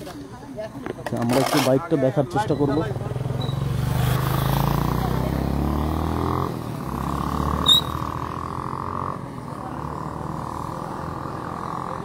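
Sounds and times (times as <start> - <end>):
vehicle engine passing: 2.6 - 12.0
sharp high squeak: 3.4 - 3.7, 7.6 - 8.1.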